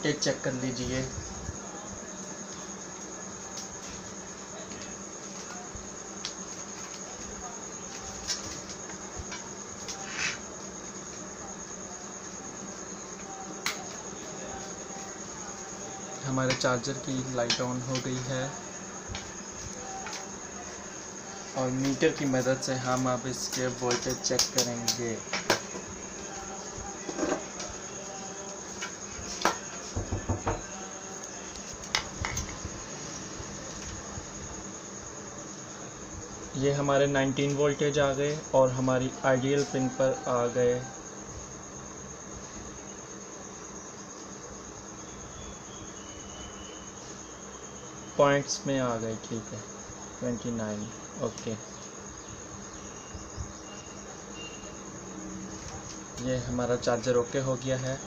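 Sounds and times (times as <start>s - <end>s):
cables tapping on glass table: 23.0s - 25.9s, 27.0s - 27.8s, 28.8s - 30.7s.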